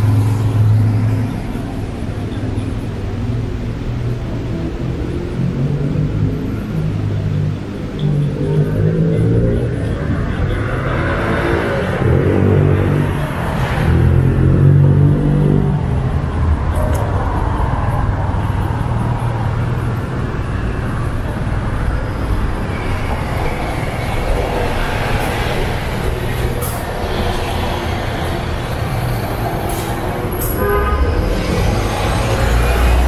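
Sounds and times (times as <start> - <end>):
passing cars: 0.0 - 33.0.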